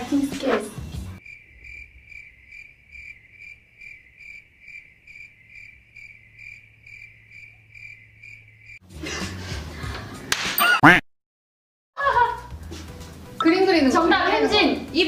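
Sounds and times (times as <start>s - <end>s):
cricket chirping: 1.2s - 8.8s.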